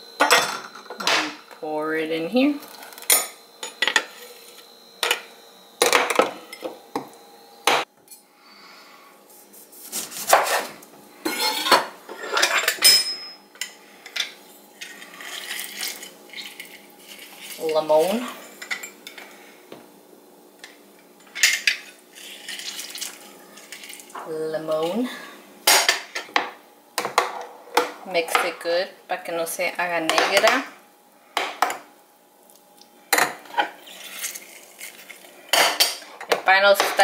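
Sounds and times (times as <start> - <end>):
kitchen clatter on countertop: 2.7 - 4.3, 10.3 - 16.5, 25.7 - 28.6, 30.1 - 30.7, 31.4 - 31.9, 35.5 - 37.0.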